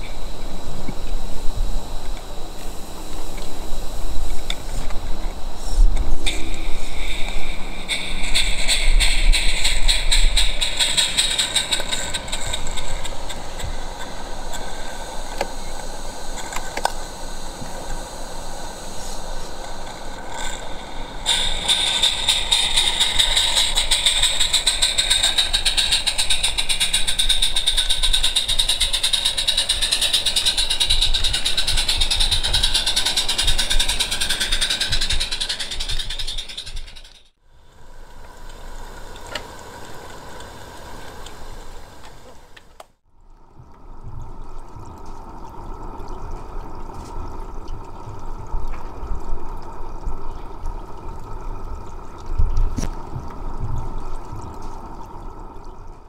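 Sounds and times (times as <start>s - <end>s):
steam locomotive exhaust beats: 0.0s - 42.8s.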